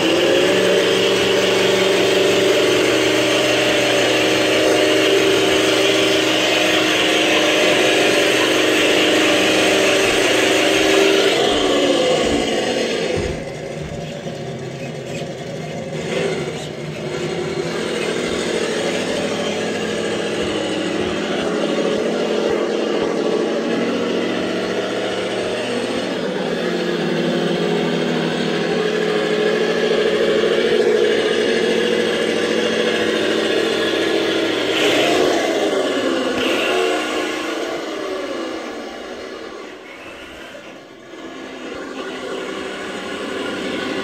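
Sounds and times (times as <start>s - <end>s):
toy car electric motor whining: 0.0s - 23.8s, 33.8s - 44.0s.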